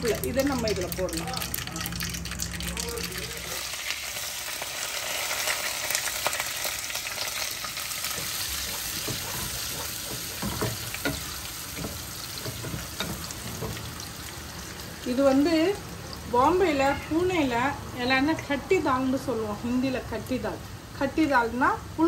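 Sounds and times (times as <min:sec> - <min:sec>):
garlic and onion sizzling in oil: 0:00.0 - 0:22.0
wooden spatula scraping a pan: 0:08.0 - 0:13.9.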